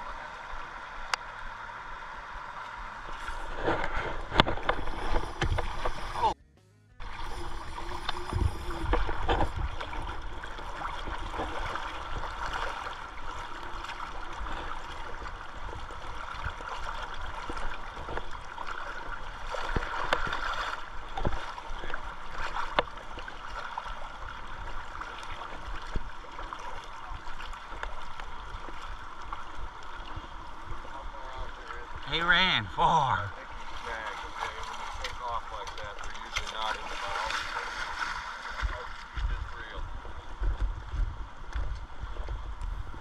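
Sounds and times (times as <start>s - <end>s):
river rushing and gurgling: 0.0s - 6.4s, 7.0s - 31.2s, 31.8s - 35.3s.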